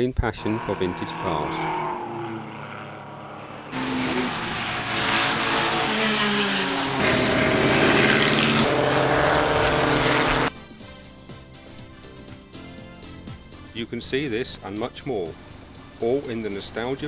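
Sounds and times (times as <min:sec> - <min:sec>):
racing car engines passing: 0:00.0 - 0:10.5.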